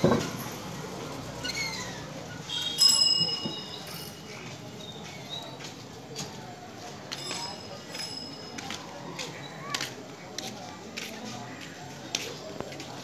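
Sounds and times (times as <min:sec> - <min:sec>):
bicycle bell ringing: 0:02.5 - 0:04.6, 0:07.1 - 0:09.2.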